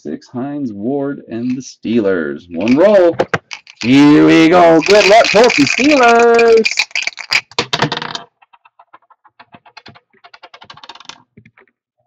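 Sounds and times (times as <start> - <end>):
die rattling in a cup: 2.5 - 11.4
die skittering on wooden table: 2.7 - 11.6.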